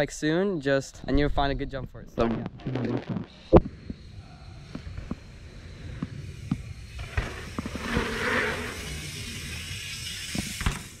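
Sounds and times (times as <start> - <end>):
bike tyres on dirt: 3.3 - 11.0
bike knocking and rattling: 4.7 - 11.0.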